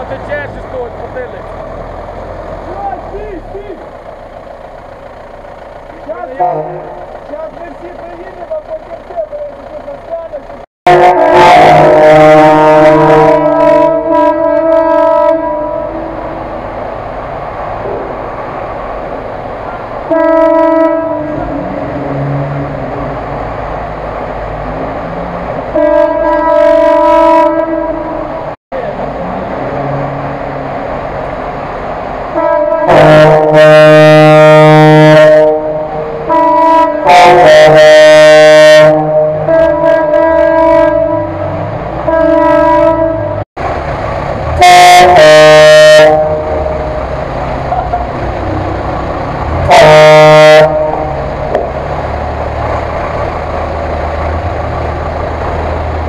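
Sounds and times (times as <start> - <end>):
rumble of engines: 0.0 - 56.0
water: 0.0 - 56.0
vehicle horn blasts: 6.4 - 7.0, 10.9 - 16.4, 20.1 - 22.5, 25.8 - 28.4, 32.4 - 43.4, 44.6 - 46.9, 49.6 - 51.2.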